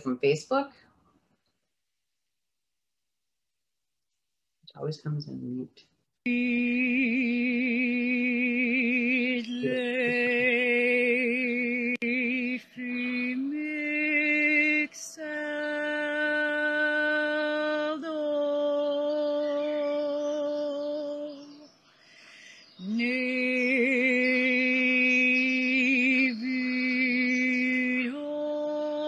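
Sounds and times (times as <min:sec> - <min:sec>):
woman singing held tones: 0:06.3 - 0:21.8, 0:22.6 - 0:29.0
woman breathing: 0:21.9 - 0:22.8.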